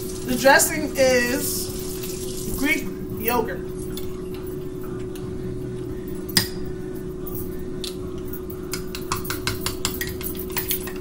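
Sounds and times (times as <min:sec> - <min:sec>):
steady low hum: 0:00.0 - 0:11.0
metal spoon clinking in glass jar: 0:08.4 - 0:11.0.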